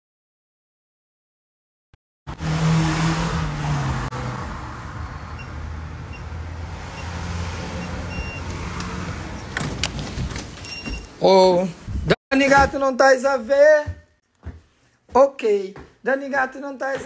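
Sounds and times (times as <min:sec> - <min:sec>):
traffic noise: 0:02.3 - 0:11.3.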